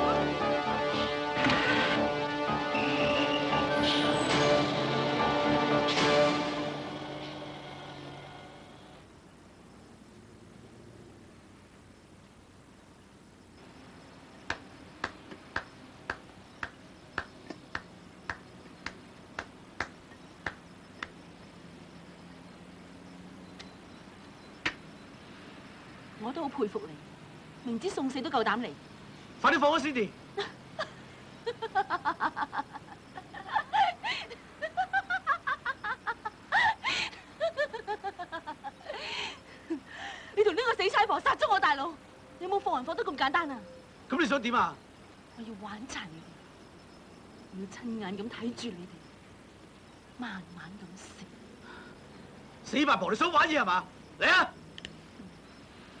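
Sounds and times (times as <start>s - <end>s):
faint steady hum: 0.0s - 56.0s
person laughing mockingly: 30.4s - 39.8s
sharp clicks: 54.8s - 55.0s.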